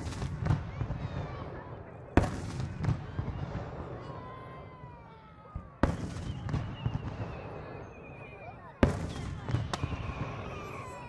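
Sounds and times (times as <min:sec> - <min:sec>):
fireworks bursting: 0:00.0 - 0:04.8, 0:05.4 - 0:11.0
crowd murmur: 0:00.0 - 0:11.0
firework whistle: 0:05.6 - 0:11.0.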